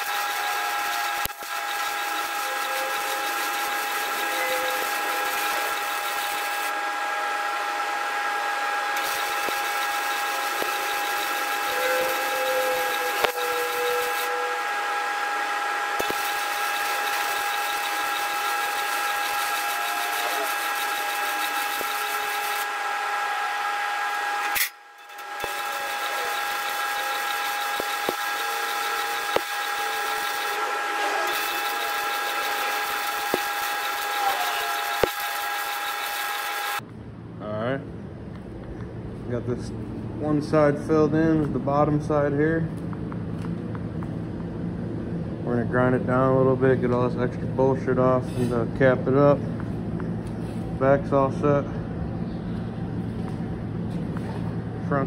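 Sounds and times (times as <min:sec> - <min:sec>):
welding arc hissing crackle: 0:00.0 - 0:06.7, 0:08.9 - 0:14.9, 0:15.8 - 0:22.9, 0:24.0 - 0:36.8.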